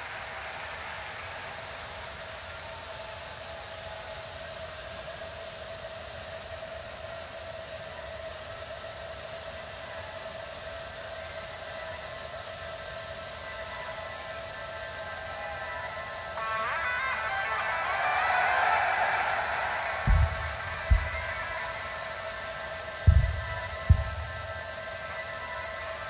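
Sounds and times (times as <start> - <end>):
ambient drone: 0.0 - 26.0
higher held tones: 20.1 - 22.0, 23.1 - 24.8.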